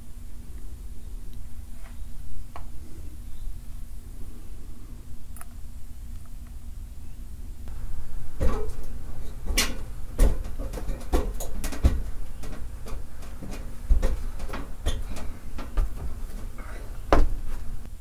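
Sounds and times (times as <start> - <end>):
steady low hum: 0.0 - 18.0
objects knocking and clattering: 8.4 - 17.5.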